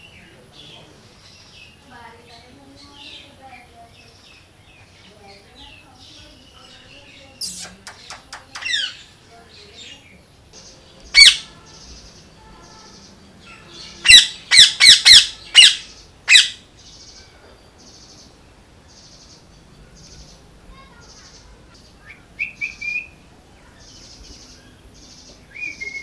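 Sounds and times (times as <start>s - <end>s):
parakeet squawking: 7.4s - 9.2s, 11.1s - 16.7s.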